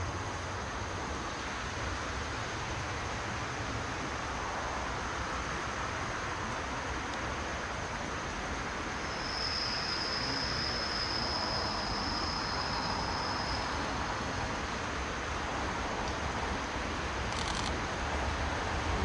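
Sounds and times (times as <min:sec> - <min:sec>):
high-pitched squeal: 0:09.0 - 0:14.5.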